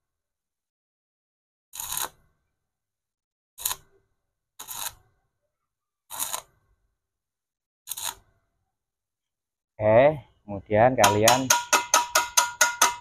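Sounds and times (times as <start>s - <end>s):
arc welder crackling: 1.8s - 2.2s, 4.6s - 5.0s, 7.9s - 8.2s.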